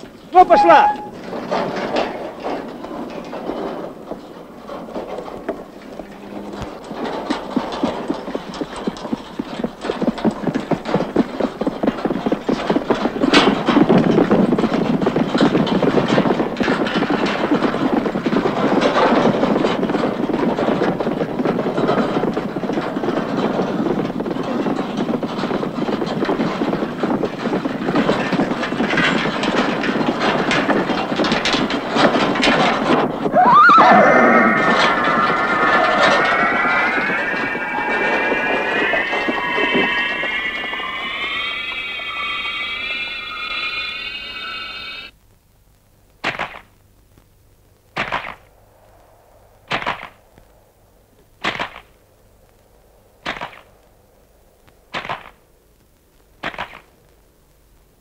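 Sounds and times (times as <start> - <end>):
horse hoofbeats trotting: 0.0 - 43.8.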